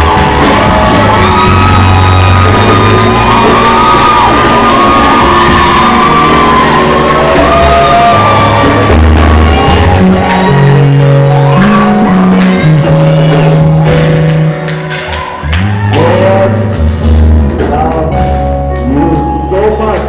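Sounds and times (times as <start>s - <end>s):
crowd shouting and singing along: 0.0s - 20.0s
loud worship music: 0.0s - 20.0s.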